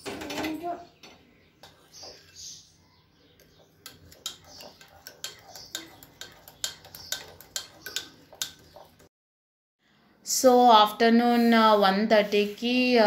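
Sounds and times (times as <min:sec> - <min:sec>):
metal spoon clinking in mug: 0:03.8 - 0:08.9.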